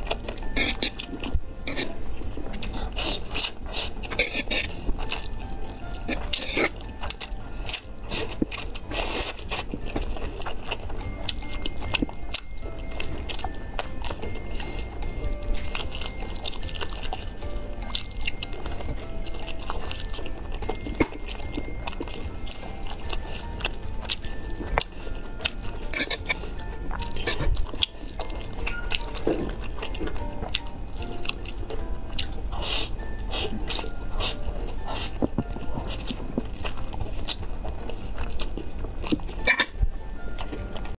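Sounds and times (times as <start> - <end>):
faint background music: 0.0 - 41.0
wet chewing: 0.0 - 41.0
noodles slurped: 8.1 - 9.8.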